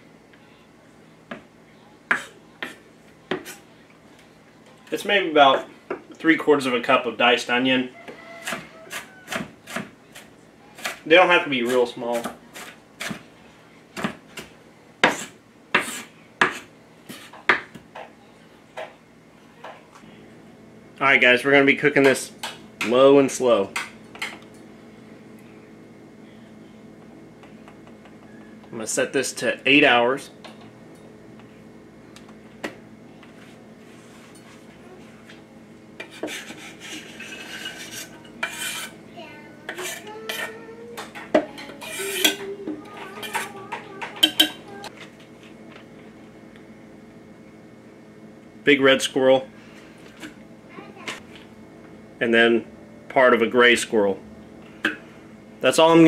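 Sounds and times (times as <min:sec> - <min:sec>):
knife scraping cutting board: 0:15.0 - 0:17.5, 0:36.0 - 0:39.0, 0:39.7 - 0:40.6, 0:41.7 - 0:42.4
knife chopping on wooden board: 0:15.0 - 0:17.8.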